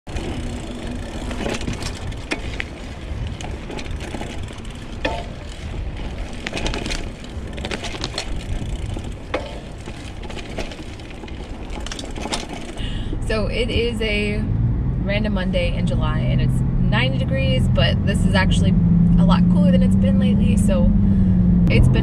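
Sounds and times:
bike tyres rumbling on dirt trail: 0:00.0 - 0:13.9
bike rattling over bumps: 0:00.0 - 0:14.5.

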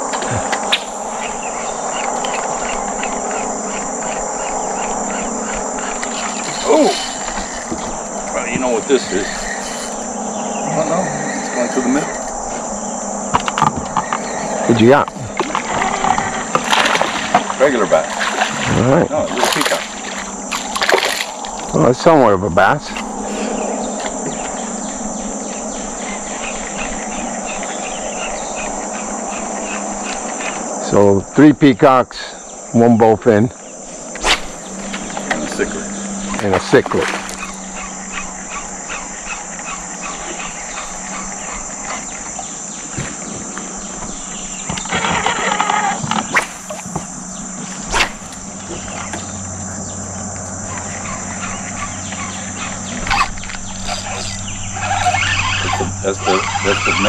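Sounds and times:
insects chirping: 0:00.0 - 0:57.0
low hum: 0:00.0 - 0:57.0.

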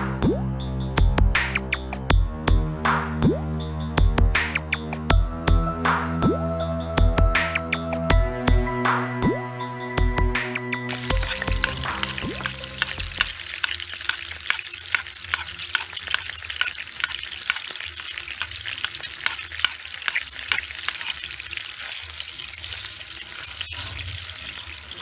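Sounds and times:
butter spattering crackles: 0:10.9 - 0:25.0
steak sizzling in butter: 0:10.9 - 0:25.0.

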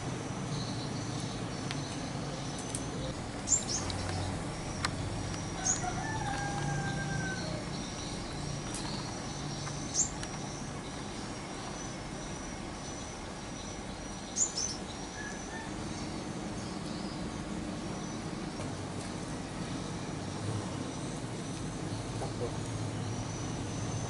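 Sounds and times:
high insect drone: 0:00.0 - 0:24.0
rooster crowing: 0:05.6 - 0:07.8, 0:15.1 - 0:16.1.

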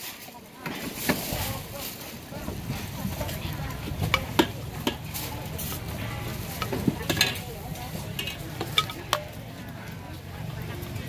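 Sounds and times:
background noise: 0:00.0 - 0:11.0
metal ladle scraping a pot: 0:00.6 - 0:09.2.

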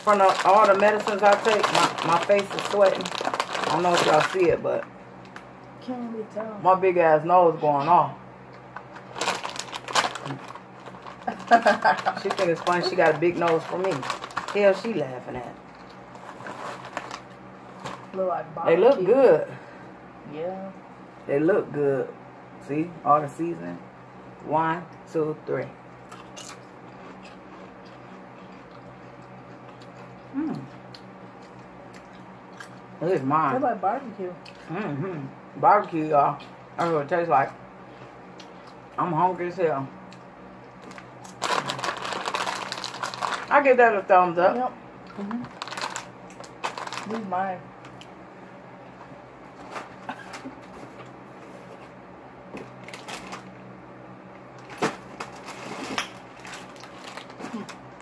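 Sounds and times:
people chewing potato chips: 0:00.0 - 0:04.6, 0:08.8 - 0:14.9, 0:26.0 - 0:32.9, 0:40.6 - 0:43.5, 0:45.1 - 0:47.3, 0:54.6 - 0:57.9
steady low hum: 0:00.0 - 0:58.0
person humming: 0:30.3 - 0:30.7, 0:45.1 - 0:45.5.

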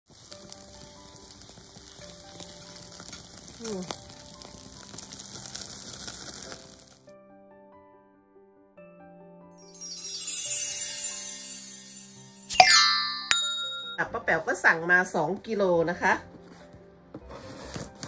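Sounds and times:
bones sizzling on a grill: 0:00.1 - 0:07.1
background music: 0:06.7 - 0:18.0.

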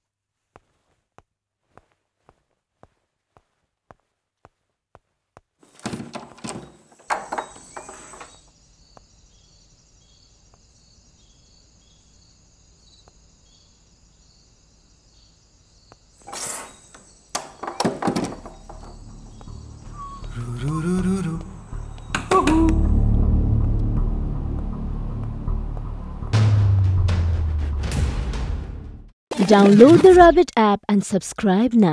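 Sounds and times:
knocks and thuds: 0:05.7 - 0:08.4, 0:17.4 - 0:19.1.

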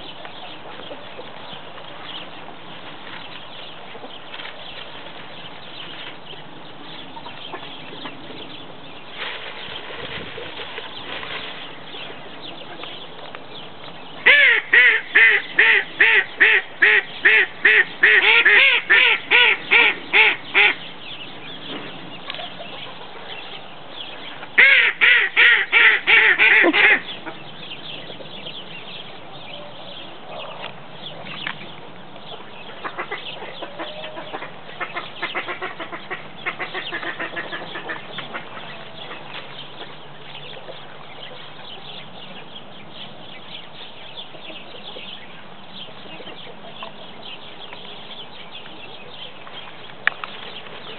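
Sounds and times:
ducks quacking rapidly: 0:14.2 - 0:20.9, 0:24.6 - 0:27.5, 0:32.7 - 0:39.3.

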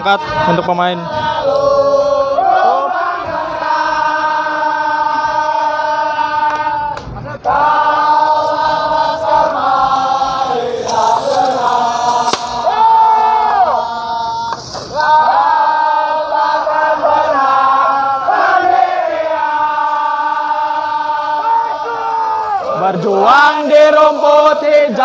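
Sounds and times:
group singing slow song: 0:00.0 - 0:25.0
sharp crack: 0:10.5 - 0:13.0, 0:14.4 - 0:15.0.

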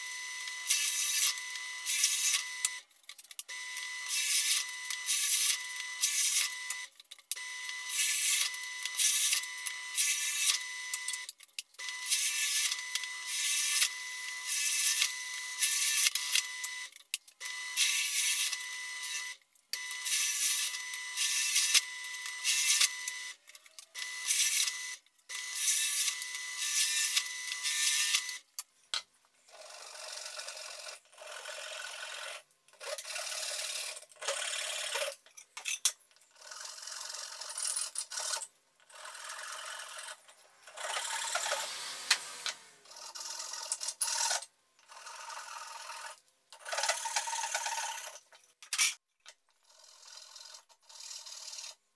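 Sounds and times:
drill press whining: 0:39.9 - 0:43.0
hand tool scraping plywood: 0:40.7 - 0:43.0.

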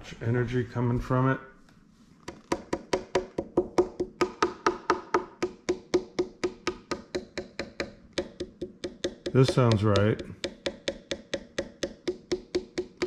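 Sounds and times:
fingertips tapping guitar body: 0:05.6 - 0:13.0.

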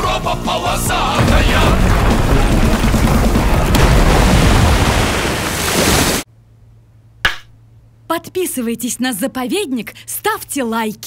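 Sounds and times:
water surge crashing: 0:01.2 - 0:06.3.

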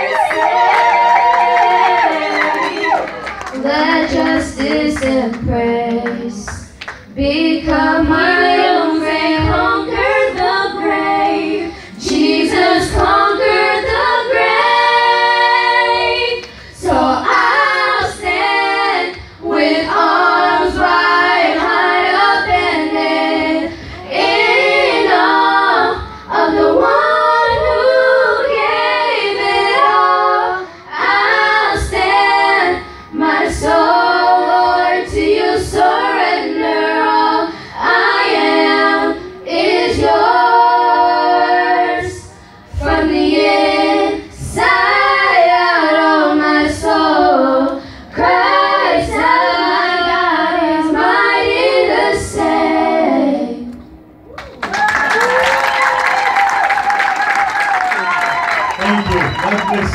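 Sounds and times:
voices singing along: 0:00.0 - 0:54.2, 0:54.8 - 0:59.9
girls singing into microphones: 0:00.0 - 0:54.4.

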